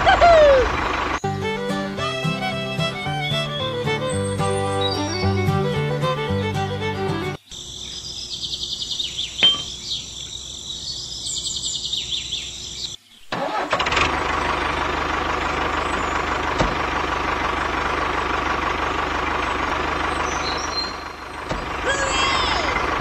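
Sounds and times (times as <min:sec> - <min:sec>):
tractor engine running: 0:00.0 - 0:10.6, 0:13.3 - 0:23.0
faint bird chirps: 0:07.4 - 0:13.3.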